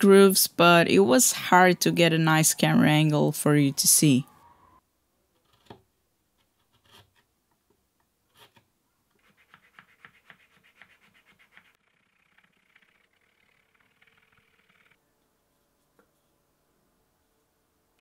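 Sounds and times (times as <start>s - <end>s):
chisel scraping wood: 5.4s - 5.8s, 6.4s - 7.3s, 8.3s - 11.8s.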